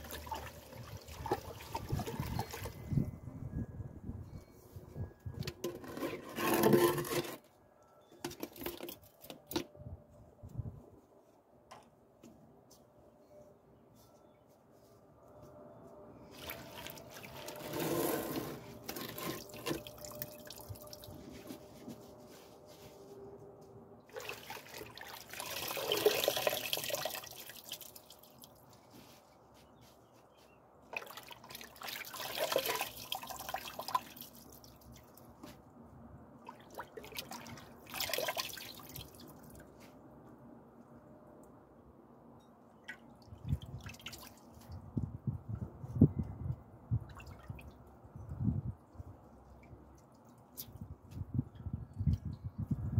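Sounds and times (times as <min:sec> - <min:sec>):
water splashing: 0:24.1 - 0:28.5.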